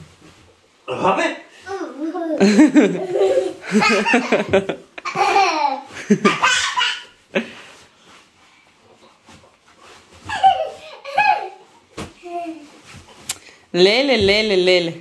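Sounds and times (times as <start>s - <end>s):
hearty laughter: 2.4s - 5.4s.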